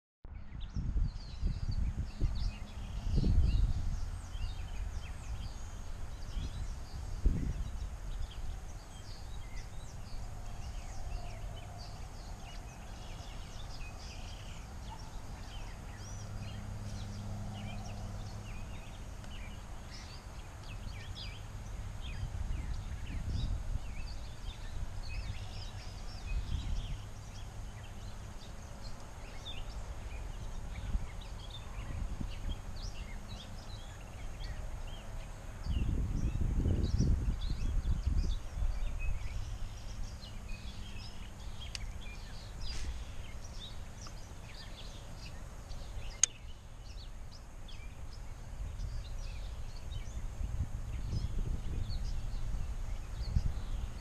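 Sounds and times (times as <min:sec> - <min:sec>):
wind rumble on microphone: 0:00.2 - 0:54.0
bird chirps: 0:35.7 - 0:50.2.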